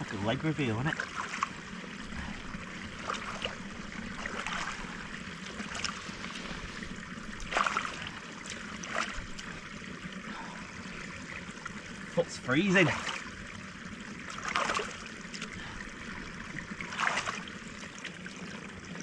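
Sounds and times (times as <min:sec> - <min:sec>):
water splashing: 0:00.0 - 0:19.0
water trickling: 0:00.0 - 0:19.0.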